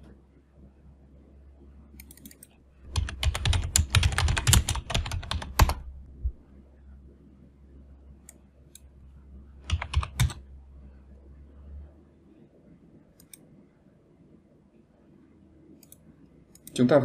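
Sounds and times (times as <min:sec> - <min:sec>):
low hum: 0:00.0 - 0:16.6
keyboard keystrokes: 0:02.0 - 0:05.9, 0:09.6 - 0:10.4.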